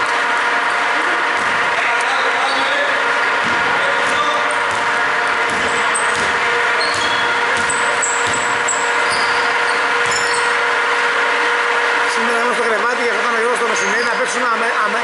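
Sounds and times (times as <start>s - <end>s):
machine-like hum: 0.0s - 15.0s
sneakers squeaking on court: 2.2s - 10.7s
basketball dribbling: 3.2s - 10.5s.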